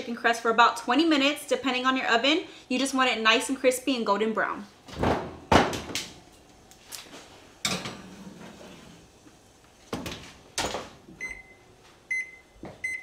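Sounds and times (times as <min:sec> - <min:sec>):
control panel beeps: 0:11.2 - 0:13.0.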